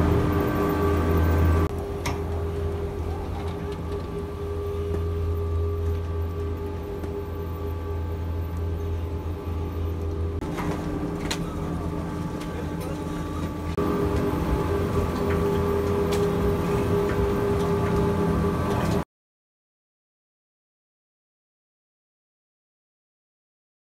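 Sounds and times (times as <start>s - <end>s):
lift machinery hum: 0.0s - 19.0s
clicks and knocks of cabins: 1.6s - 7.2s.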